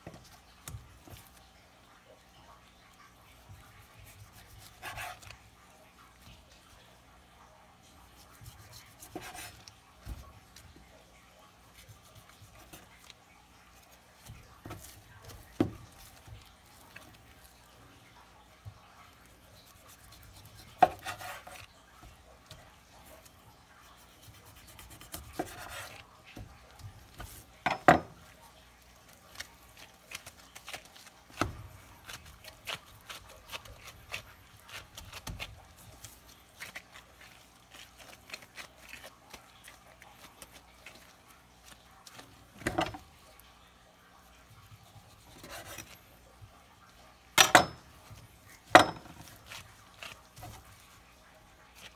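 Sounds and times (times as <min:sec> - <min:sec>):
knife scraping on cutting board: 0:03.9 - 0:05.4, 0:08.1 - 0:10.2, 0:19.6 - 0:21.8, 0:24.0 - 0:26.1, 0:44.9 - 0:46.1.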